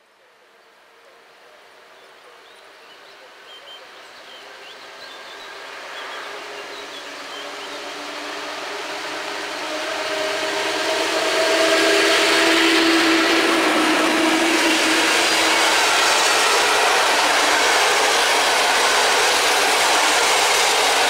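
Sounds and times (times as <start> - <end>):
train wheels rushing on rails: 3.8 - 21.0
locomotive humming: 5.0 - 21.0.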